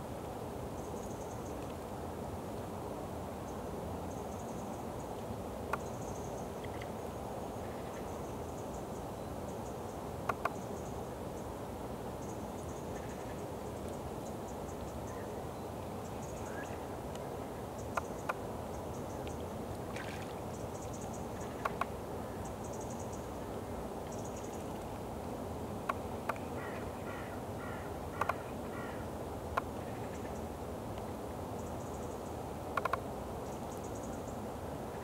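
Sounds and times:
outdoor background hiss: 0.0s - 35.0s
distant bird calls: 25.8s - 30.5s.

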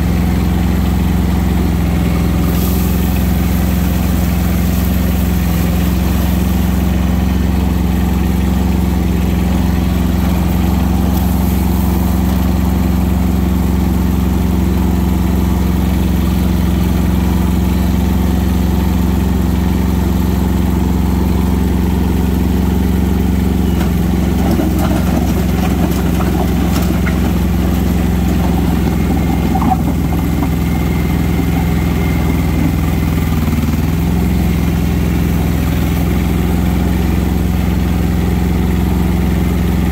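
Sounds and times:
tractor diesel engine running: 0.0s - 39.9s
rough uneven noise: 2.4s - 13.1s, 23.8s - 33.3s.

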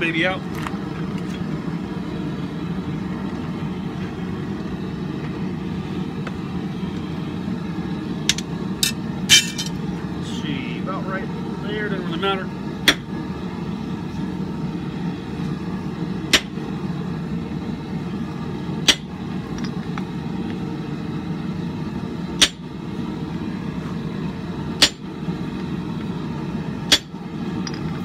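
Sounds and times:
low steady rumble: 0.0s - 28.0s
hammer striking metal punch: 24.8s - 25.0s, 26.9s - 27.1s.

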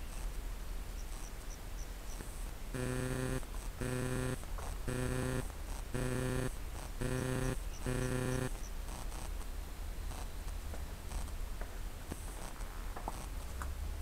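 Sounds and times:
low hum: 2.8s - 8.5s.

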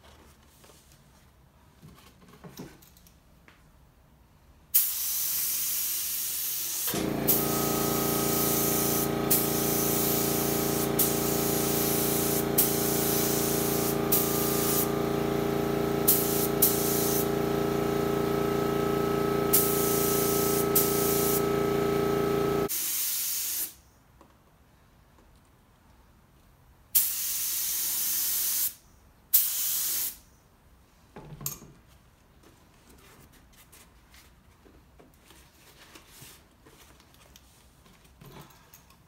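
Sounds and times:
spray gun hissing: 4.8s - 23.7s
air compressor humming: 6.8s - 22.7s.

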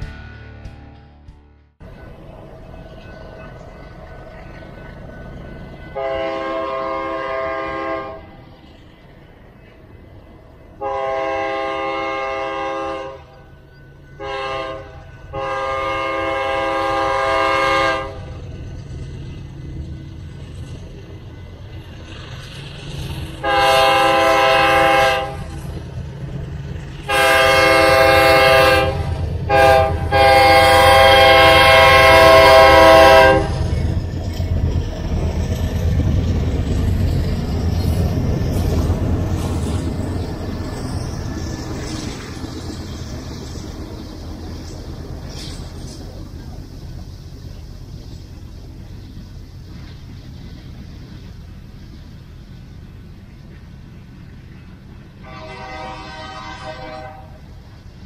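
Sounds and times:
diesel locomotive rumble: 0.0s - 58.0s
train air horn blasts: 5.9s - 8.4s, 10.8s - 13.4s, 14.2s - 18.4s, 23.4s - 25.6s, 27.0s - 33.7s, 55.2s - 57.6s.

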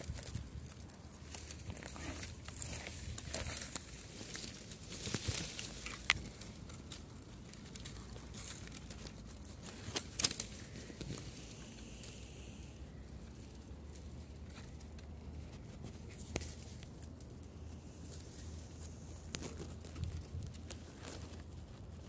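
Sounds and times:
twig snapping: 0.0s - 11.4s, 19.2s - 21.4s
dry grass rustling: 0.0s - 22.0s.

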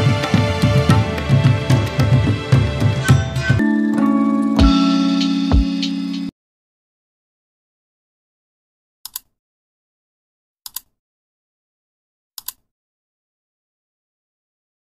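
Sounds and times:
mouse double clicks: 10.7s - 11.0s, 12.4s - 12.7s.

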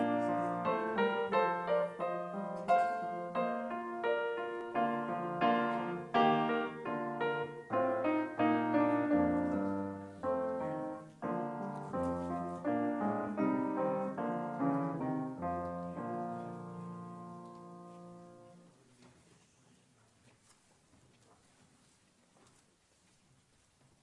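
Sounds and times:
piano chords: 0.0s - 18.7s.

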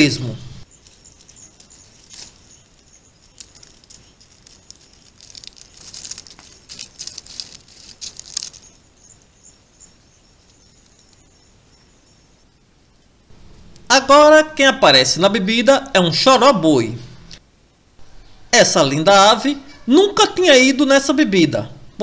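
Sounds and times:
faint crackling and rustling clicks: 0.7s - 8.8s, 10.4s - 11.3s
thin high-pitched hum: 13.3s - 14.6s.

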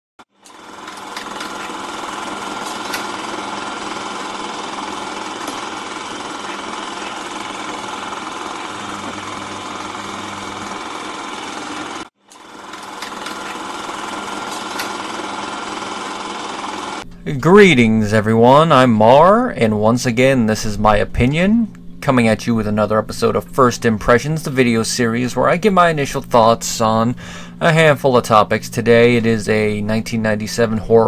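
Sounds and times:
film projector clattering: 0.3s - 17.0s.

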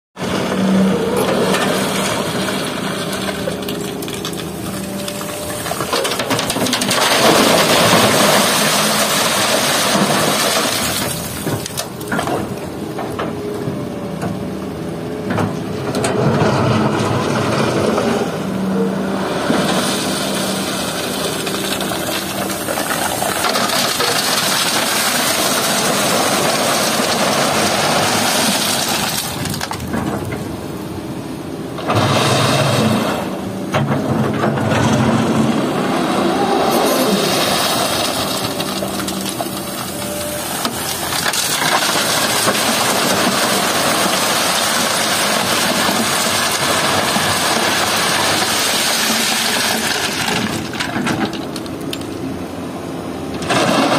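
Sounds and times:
excavator diesel engine running: 0.2s - 53.9s
wet stones pouring into truck bed: 1.4s - 12.5s, 19.6s - 30.0s, 36.5s - 51.8s, 53.4s - 53.9s.

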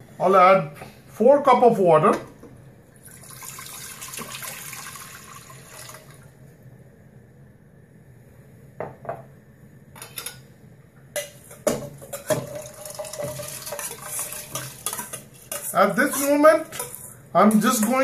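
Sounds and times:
water pouring into a pot: 3.0s - 6.4s, 12.3s - 15.1s.

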